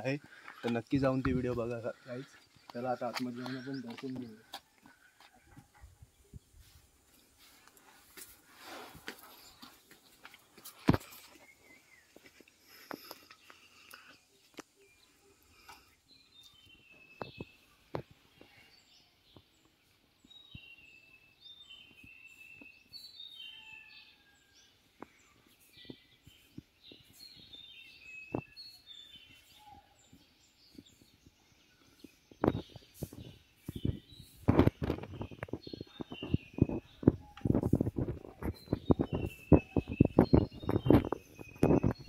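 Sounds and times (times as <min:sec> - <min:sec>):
songbird calling: 0:25.1 - 0:42.0.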